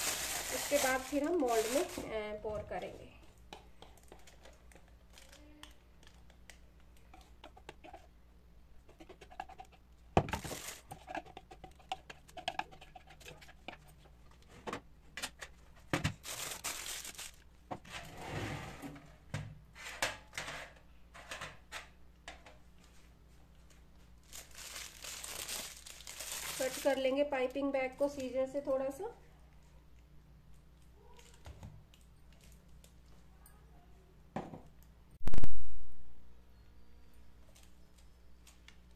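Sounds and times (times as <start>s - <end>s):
plastic bag rustling and crinkling: 0.0s - 2.8s, 10.3s - 10.9s, 16.1s - 17.5s, 24.2s - 27.3s
whisk scraping batter from bowl: 10.8s - 13.9s.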